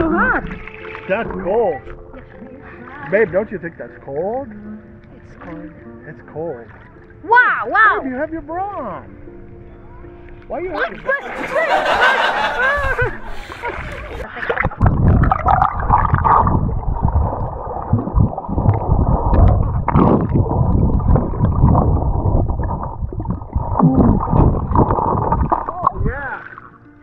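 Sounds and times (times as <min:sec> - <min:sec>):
water splashing at surface: 0:00.0 - 0:07.4, 0:10.8 - 0:26.8
muffled underwater rumble and bubbles: 0:13.3 - 0:27.0.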